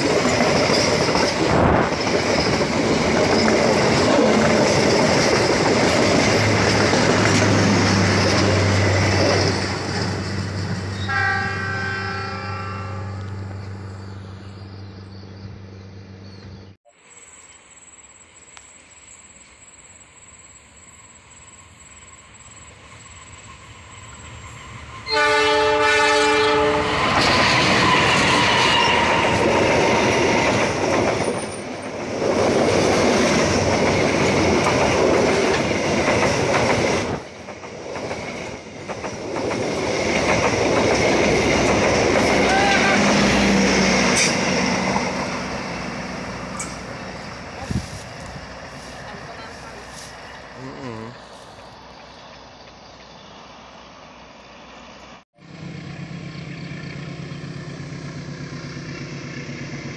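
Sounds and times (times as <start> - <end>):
train wheels rolling over rails: 0.0 - 11.2, 26.6 - 50.6
train rumble: 0.0 - 16.8, 17.8 - 59.9
train horn: 11.0 - 13.5, 25.0 - 30.0, 42.2 - 44.4
diesel locomotive horn blast: 11.0 - 13.9, 25.0 - 30.0, 42.2 - 44.6
locomotive engine running: 27.0 - 53.7, 55.4 - 59.9.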